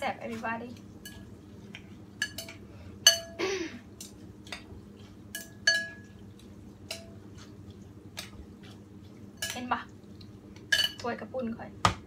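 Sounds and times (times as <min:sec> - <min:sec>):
chopsticks clinking on ceramic bowl: 0:02.2 - 0:03.4, 0:05.3 - 0:06.2.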